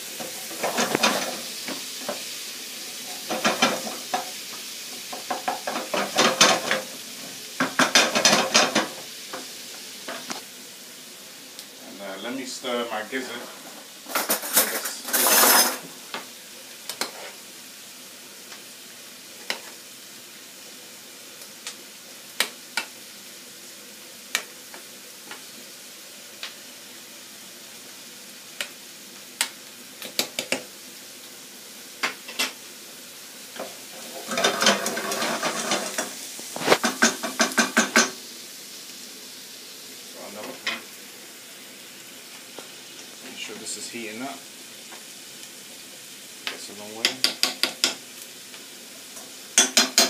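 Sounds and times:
low steady hiss: 0.0s - 50.0s
onions sizzling in a pan: 0.0s - 50.0s
wooden spoon scraping a pan: 13.2s - 15.9s, 17.0s - 17.4s, 33.6s - 38.1s.

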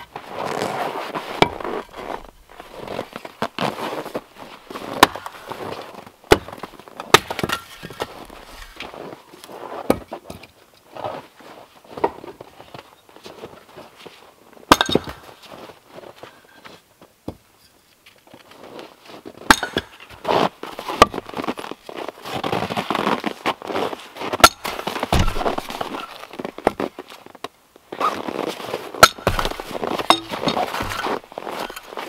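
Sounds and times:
rustling and shuffling in snow: 0.0s - 6.9s, 7.7s - 9.9s, 10.9s - 14.6s, 15.3s - 17.1s, 18.0s - 32.0s
axe splitting firewood: 1.3s - 9.0s, 9.8s - 10.6s, 14.7s - 15.4s, 19.4s - 21.8s, 24.3s - 26.9s, 28.9s - 32.0s.

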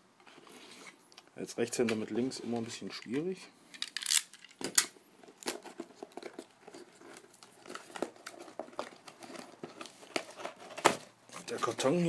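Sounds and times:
packing tape and cardboard crinkling: 3.8s - 12.0s.

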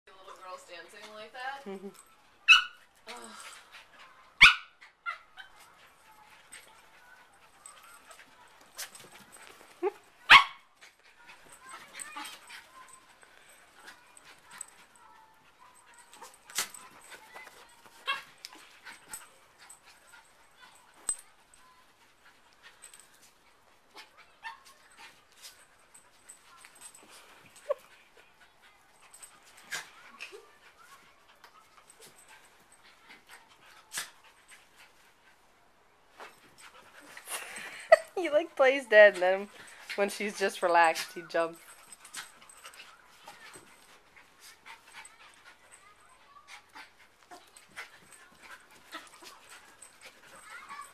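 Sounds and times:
dogs panting: 0.1s - 50.9s
dogs scuffling: 5.4s - 35.2s, 36.1s - 50.9s.

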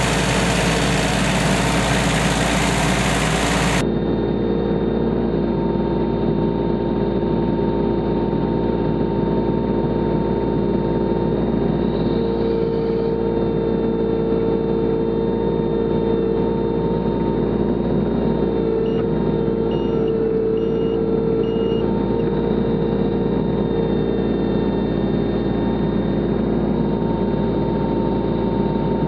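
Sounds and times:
excavator engine running: 0.0s - 3.8s
hydraulics working: 0.0s - 3.8s.

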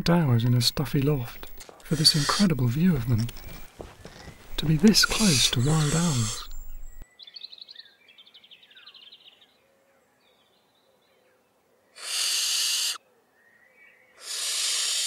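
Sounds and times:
rapid high twittering: 1.0s - 7.0s
owl chicks hissing calls: 1.4s - 2.5s, 3.2s - 7.0s, 11.9s - 13.0s, 14.2s - 15.0s.

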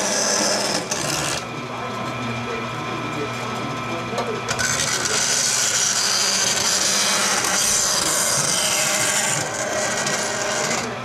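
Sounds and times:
bandsaw cutting metal: 0.0s - 1.5s, 4.5s - 11.0s
saw motor hum: 0.0s - 2.6s, 4.4s - 11.0s.

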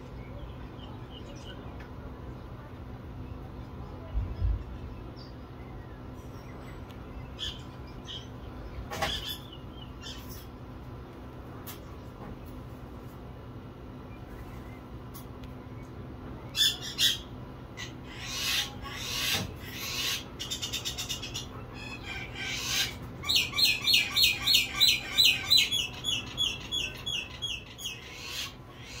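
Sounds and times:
bird singing: 0.0s - 1.8s, 3.2s - 10.4s, 15.6s - 29.0s.

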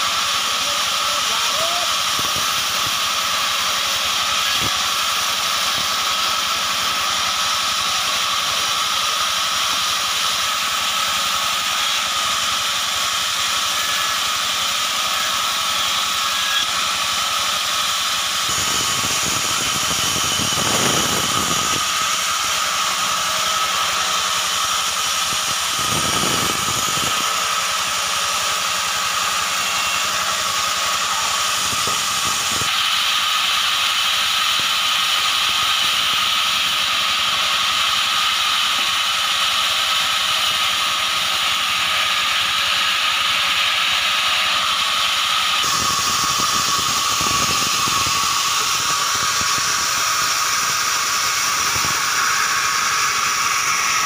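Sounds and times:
band saw cutting logs: 0.0s - 54.0s
deeper sawing sound: 0.0s - 54.0s.

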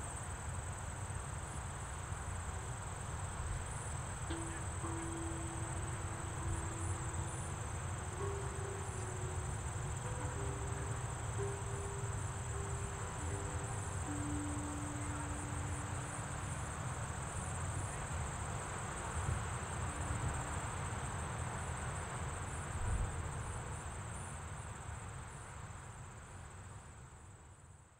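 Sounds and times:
insects droning: 0.0s - 26.8s
large tubular wind chimes: 3.6s - 23.3s.

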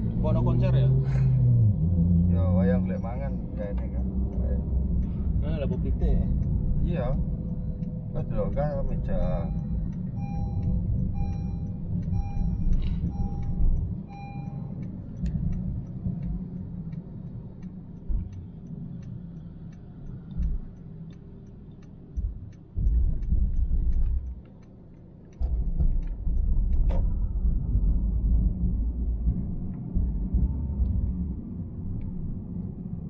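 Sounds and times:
road and engine rumble: 0.0s - 33.0s
light ticking: 3.6s - 27.7s
electronic beep: 9.2s - 14.7s.

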